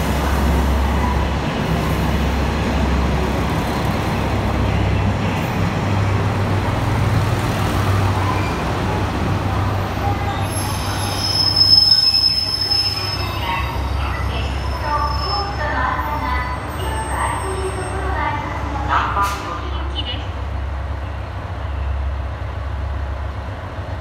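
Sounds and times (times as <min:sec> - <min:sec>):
diesel train engines droning: 0:00.0 - 0:24.0
high brake squeal: 0:08.2 - 0:08.7, 0:10.2 - 0:15.6.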